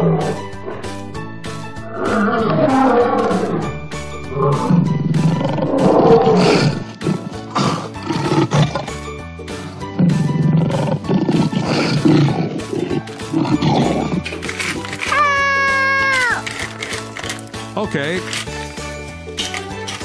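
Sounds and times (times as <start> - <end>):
lion roaring and growling: 0.0 - 9.1, 9.8 - 14.4
light background music: 0.0 - 20.0.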